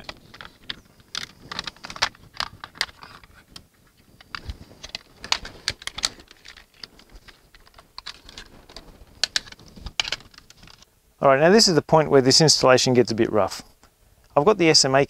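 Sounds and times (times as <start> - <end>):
cables clicking and rattling: 0.0 - 10.9.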